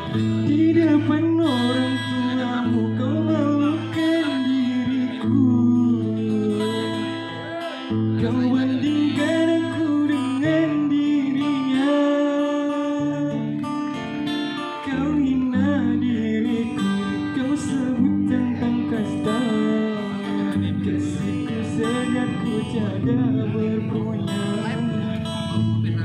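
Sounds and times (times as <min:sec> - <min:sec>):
acoustic guitars strummed: 0:00.0 - 0:26.0
man singing: 0:00.0 - 0:26.0.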